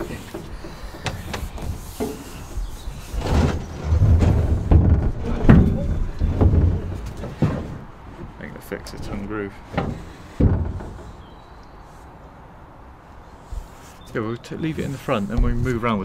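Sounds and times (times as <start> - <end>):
plastic tank knocking and scraping: 0.0 - 11.4, 15.3 - 15.8.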